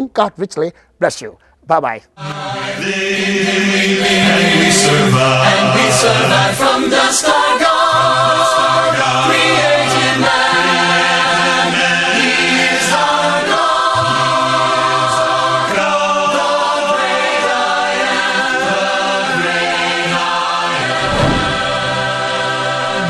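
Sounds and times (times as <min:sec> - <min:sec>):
choir singing a cappella: 0:02.2 - 0:23.0.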